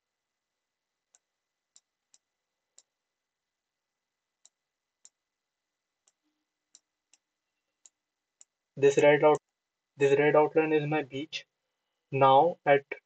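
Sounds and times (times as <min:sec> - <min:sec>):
computer mouse clicks: 0:01.1 - 0:03.0, 0:04.4 - 0:05.2.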